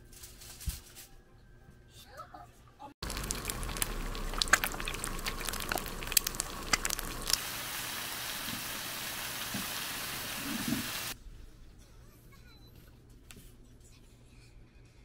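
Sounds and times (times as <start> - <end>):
bacon sizzling: 3.0 - 11.2
eggs sizzling and crackling: 3.0 - 11.2.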